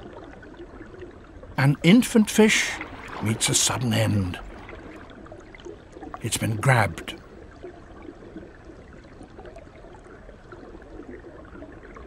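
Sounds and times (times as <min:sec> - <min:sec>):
flowing water hiss: 0:01.7 - 0:05.0.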